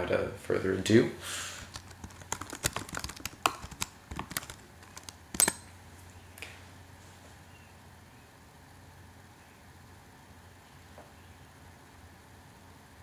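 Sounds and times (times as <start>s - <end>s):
computer keyboard keystrokes: 1.7s - 5.6s.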